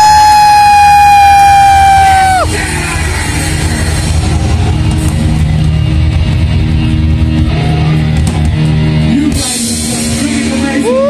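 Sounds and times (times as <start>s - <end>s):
distorted electric guitars: 0.0s - 11.0s
drum kit and cymbals: 0.0s - 11.0s.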